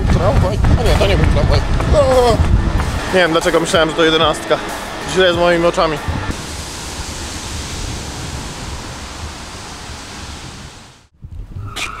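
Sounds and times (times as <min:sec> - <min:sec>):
low rumble: 0:00.0 - 0:11.5
rushing hiss: 0:06.3 - 0:11.1.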